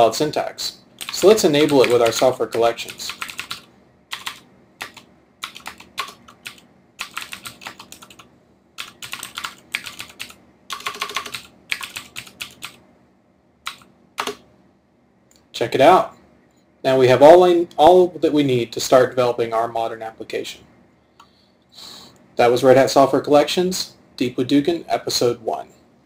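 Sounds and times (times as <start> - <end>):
computer keyboard typing: 1.0 - 12.8, 13.7 - 14.4.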